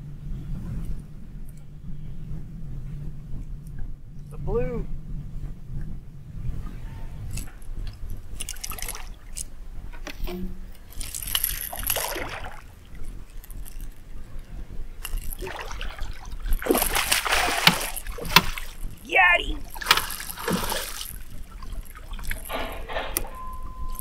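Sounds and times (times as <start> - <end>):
water splashing and sloshing: 6.6 - 24.0.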